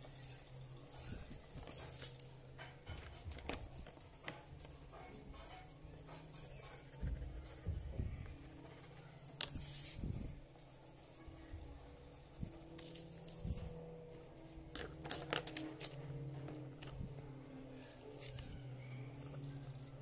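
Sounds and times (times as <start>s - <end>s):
pencil scratching on paper: 0.0s - 3.2s, 3.9s - 13.6s.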